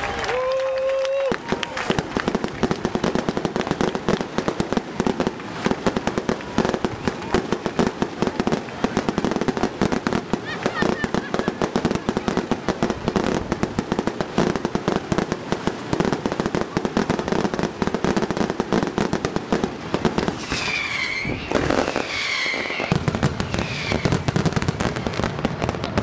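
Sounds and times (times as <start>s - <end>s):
fireworks bangs and crackles: 0.0s - 26.0s
firework whistles: 20.0s - 25.3s.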